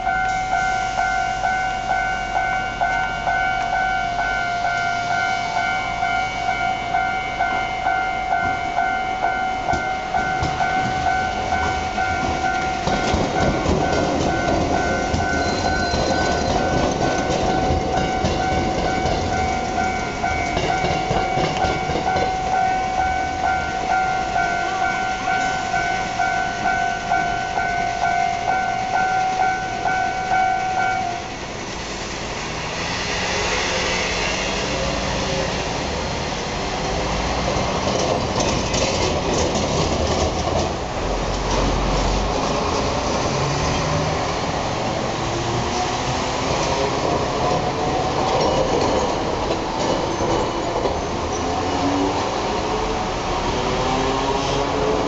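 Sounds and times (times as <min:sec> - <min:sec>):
level crossing warning bell: 0:00.0 - 0:31.6
electric train rumbling past: 0:00.0 - 0:55.0
train wheels clattering on rails: 0:09.6 - 0:31.2, 0:32.4 - 0:55.0.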